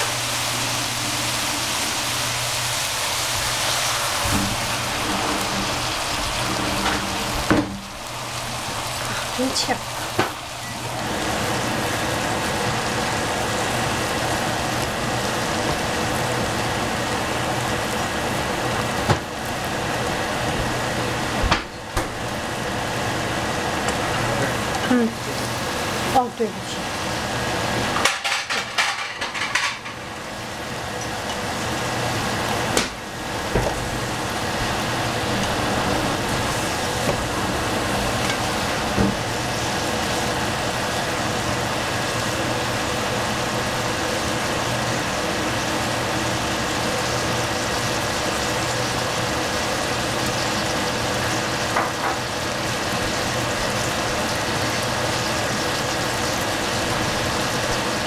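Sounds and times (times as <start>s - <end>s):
pan bubbling hiss: 0.0s - 58.0s
utensil clacking against pan: 28.0s - 30.0s.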